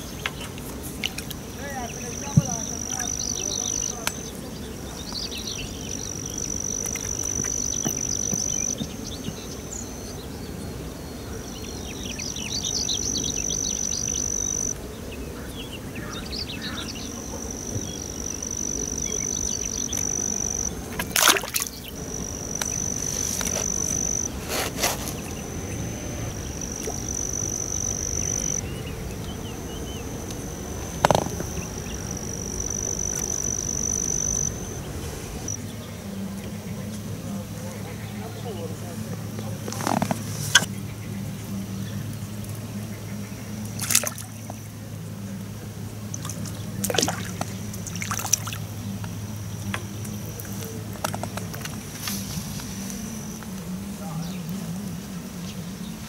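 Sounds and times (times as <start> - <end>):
insect buzzing: 0.0 - 35.7.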